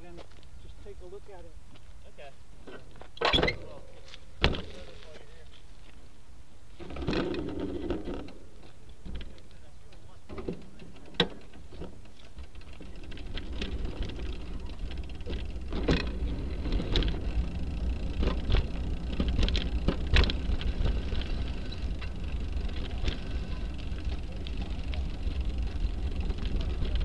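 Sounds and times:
rack and bag rattling: 10.3s - 27.0s
bicycle tyre noise: 11.4s - 27.0s.

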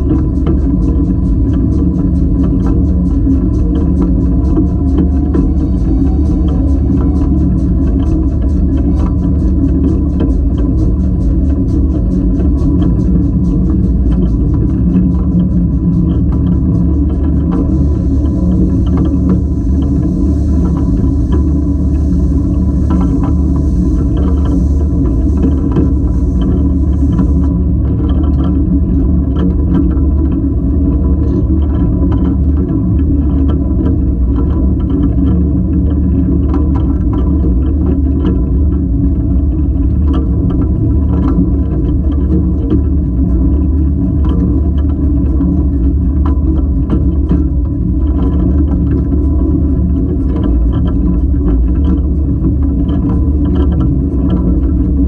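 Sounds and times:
train wheels rumbling: 0.0s - 55.0s.

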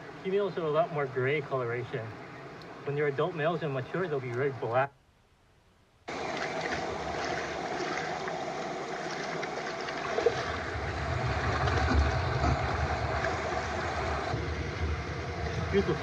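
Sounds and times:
stream water splashing: 6.1s - 16.0s.

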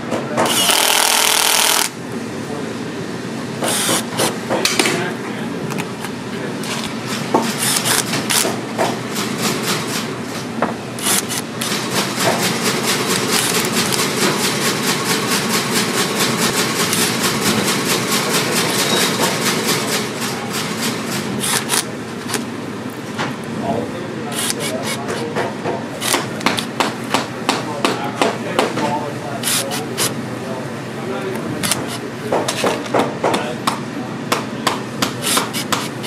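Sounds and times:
cordless drill drilling rubber: 0.5s - 2.0s, 3.7s - 4.1s, 7.6s - 8.4s, 11.0s - 11.7s.

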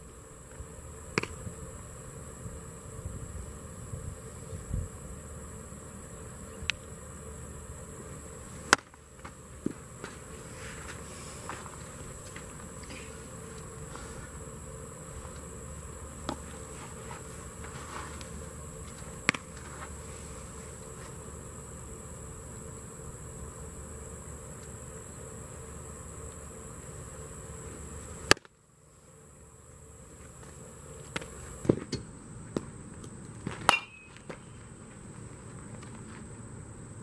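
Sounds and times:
insects buzzing: 0.0s - 37.0s.

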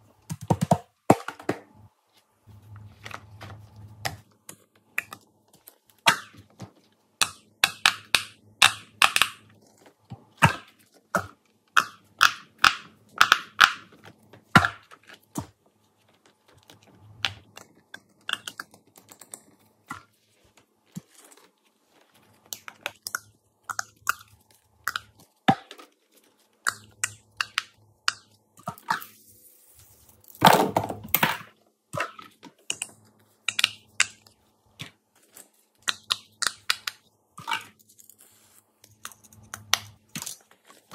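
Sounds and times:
fidget toys clicking and tapping: 7.2s - 9.5s, 10.5s - 14.8s, 16.7s - 20.1s, 32.5s - 34.4s, 35.8s - 37.7s.

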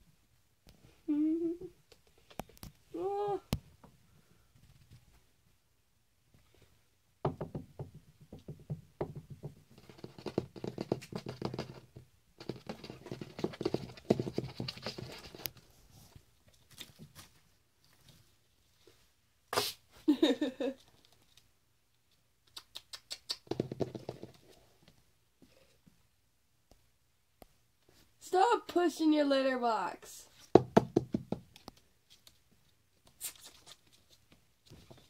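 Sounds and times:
ferret paws tapping on wooden floor: 7.3s - 15.6s, 23.4s - 24.5s, 30.5s - 31.9s.

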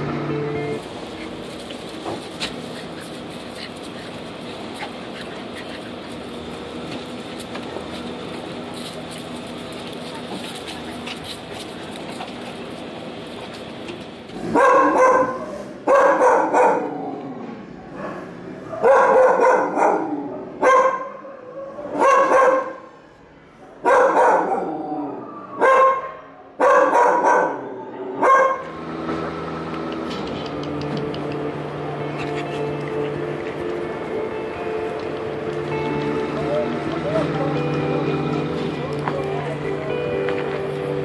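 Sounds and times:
dog barking: 14.5s - 16.9s, 18.0s - 21.2s, 21.9s - 22.8s, 23.8s - 24.7s, 25.6s - 27.6s, 28.2s - 28.6s.

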